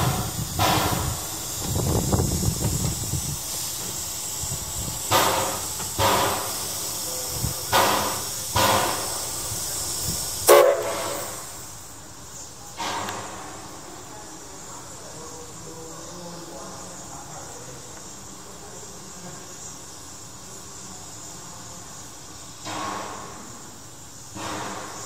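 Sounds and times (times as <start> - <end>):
sharp steam blasts: 0.0 - 15.0, 19.2 - 25.0
steam hissing: 0.0 - 25.0.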